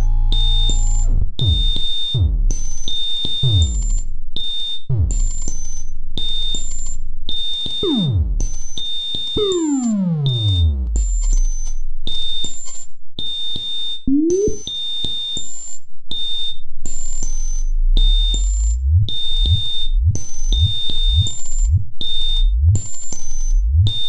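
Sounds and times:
high synth beeps: 0:09.4 - 0:10.6, 0:14.1 - 0:14.7
rising synth sweep: 0:14.1 - 0:14.7.

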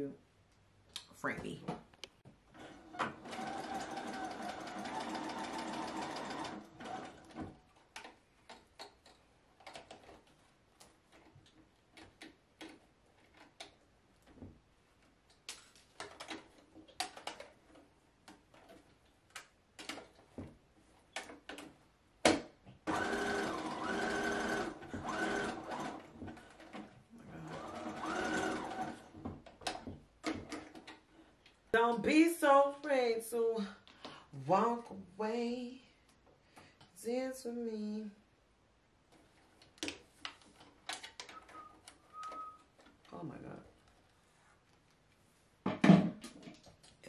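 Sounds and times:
sewing machine stitching: 0:02.5 - 0:08.1, 0:22.8 - 0:31.0.

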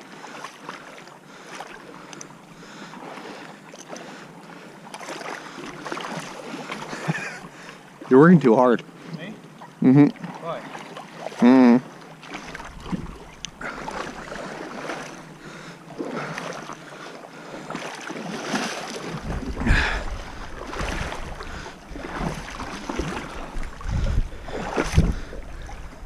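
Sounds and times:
water splashing from wading: 0:00.0 - 0:26.0
wind rumble on microphone: 0:12.5 - 0:13.3, 0:19.0 - 0:26.0.

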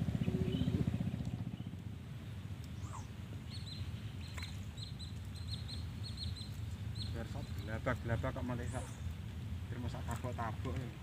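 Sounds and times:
bird chirping: 0:00.0 - 0:01.9, 0:02.7 - 0:07.8
low pulsing engine drone: 0:00.0 - 0:11.0.

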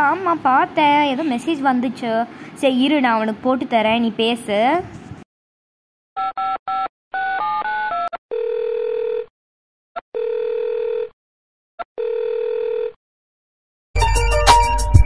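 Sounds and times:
phone ringback tone: 0:06.2 - 0:09.3, 0:10.2 - 0:11.2, 0:12.0 - 0:13.0.

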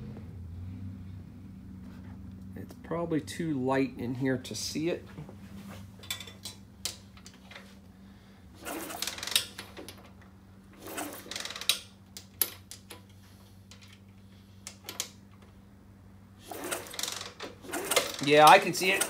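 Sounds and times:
low hum: 0:00.0 - 0:10.9
engine cranking: 0:08.6 - 0:15.4, 0:16.4 - 0:19.0.

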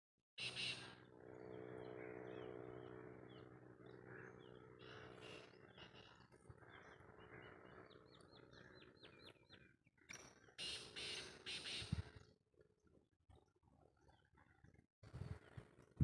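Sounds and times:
bird chirping: 0:04.2 - 0:12.3.

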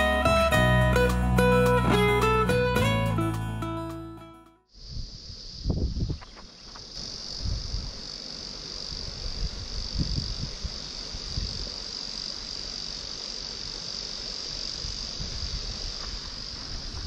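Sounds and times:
high-pitched insect chorus: 0:04.7 - 0:17.0.

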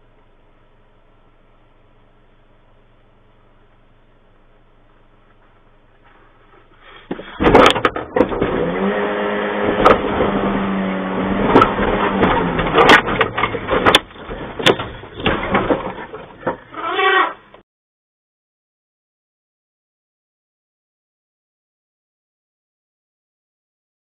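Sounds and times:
truck engine running hard: 0:05.0 - 0:15.6
bangs and crunches on sheet metal: 0:07.1 - 0:08.9, 0:09.6 - 0:16.8.

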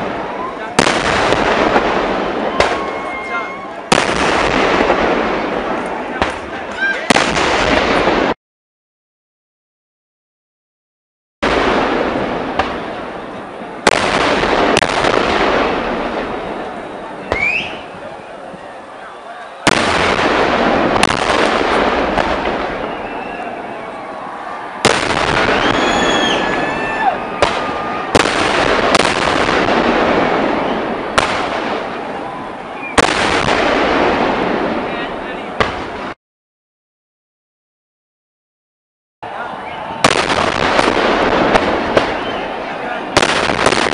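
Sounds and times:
fireworks bangs rumbling: 0:00.0 - 0:08.4, 0:11.4 - 0:36.2, 0:39.8 - 0:43.9
sharp loud bangs: 0:00.8 - 0:08.4, 0:13.8 - 0:16.2, 0:19.6 - 0:23.4, 0:24.8 - 0:32.0, 0:32.9 - 0:34.8, 0:35.6 - 0:36.2, 0:40.0 - 0:42.4, 0:43.1 - 0:43.9
short rising whistle: 0:25.6 - 0:27.0.

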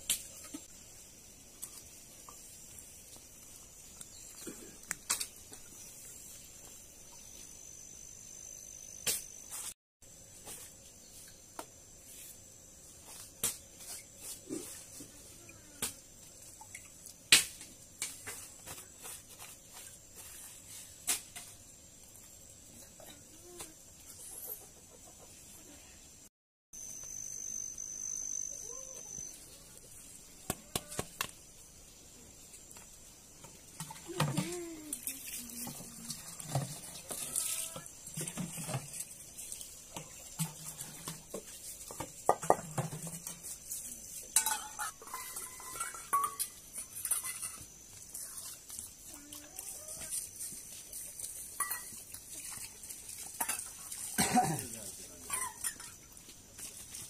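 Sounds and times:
high-pitched insect drone: 0:26.8 - 0:29.6
dishes clinking and knocking: 0:41.9 - 0:43.3, 0:44.4 - 0:47.6, 0:51.6 - 0:52.0.

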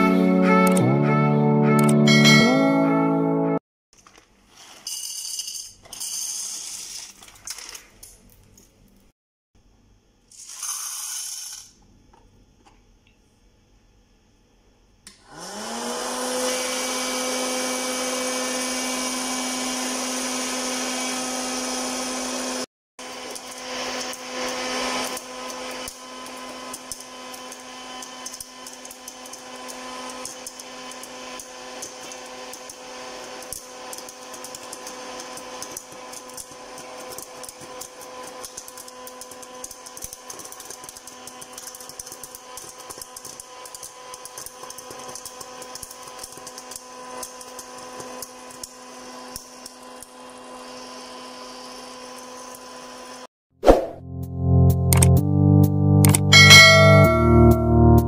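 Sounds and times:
popcorn maker fan whirring: 0:15.1 - 0:53.3
popcorn kernels popping: 0:23.4 - 0:48.8.

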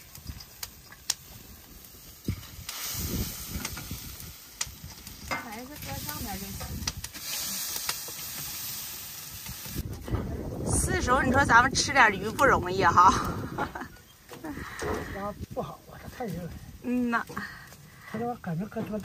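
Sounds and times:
fish sizzling in a wok: 0:00.0 - 0:10.0.

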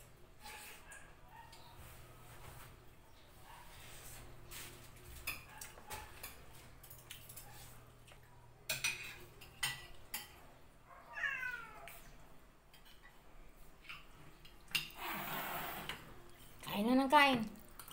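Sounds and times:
cutlery clinking on plates: 0:05.0 - 0:07.8, 0:08.5 - 0:10.5.

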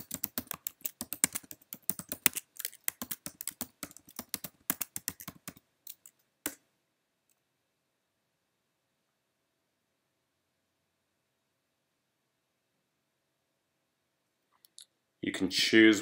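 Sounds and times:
keyboard typing: 0:00.0 - 0:06.6.

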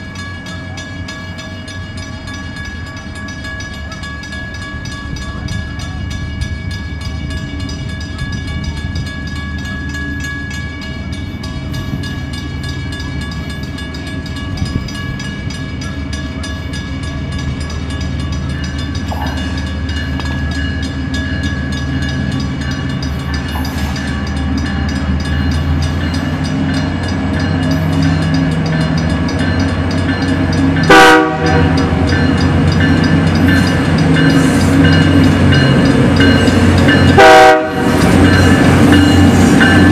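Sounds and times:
diesel locomotive engine rumble: 0:00.0 - 0:39.9
train horn: 0:30.8 - 0:32.0, 0:37.1 - 0:38.0.

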